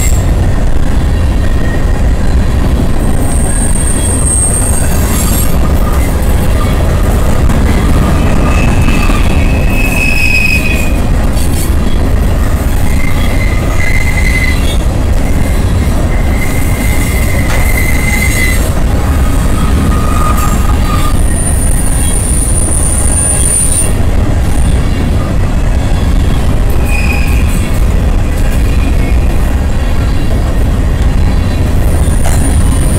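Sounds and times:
train wheels rumbling on rail: 0.0s - 32.9s
high-pitched wheel squeals: 3.1s - 6.8s, 7.7s - 11.6s, 12.8s - 14.8s, 15.4s - 24.0s, 25.9s - 27.7s.

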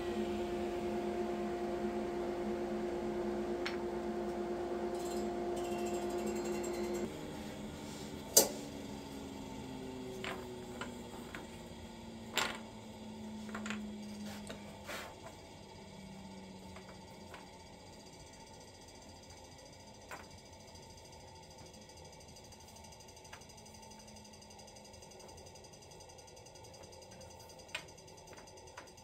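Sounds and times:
table saw motor winding down: 0.0s - 18.0s.

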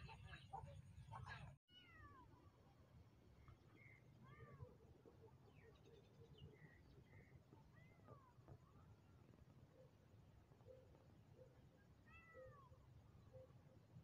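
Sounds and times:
faint cat meows: 1.7s - 2.4s, 12.0s - 12.8s.

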